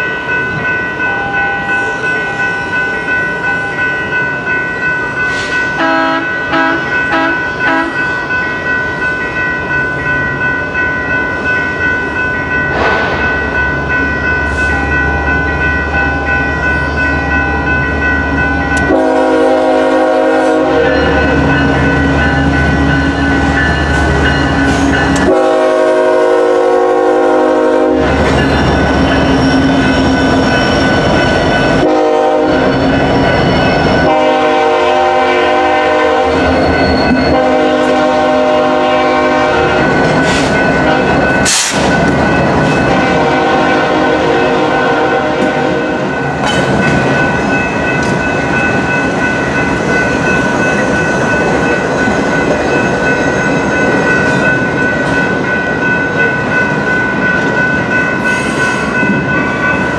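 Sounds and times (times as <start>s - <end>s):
diesel locomotives rumbling: 0.0s - 59.9s
locomotive air horn: 5.8s - 8.0s, 18.8s - 21.5s, 25.2s - 28.2s, 31.8s - 32.8s, 34.0s - 36.6s, 37.3s - 41.8s, 42.8s - 46.1s.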